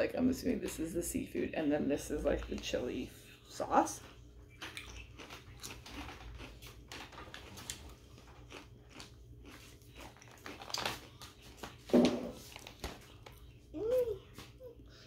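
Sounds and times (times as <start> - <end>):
person crunching potato chips: 4.6 - 11.8.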